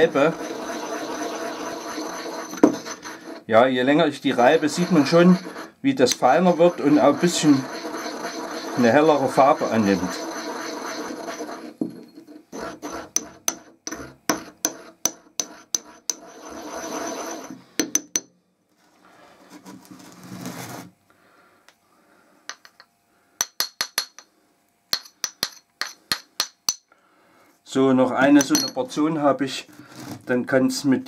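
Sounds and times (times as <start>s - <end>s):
pestle grinding crystals in mortar: 0.0s - 3.5s, 4.2s - 18.1s
scraping rub: 0.0s - 17.7s, 18.8s - 21.0s
mortar being tapped: 13.1s - 16.2s, 22.5s - 24.3s, 25.0s - 26.8s.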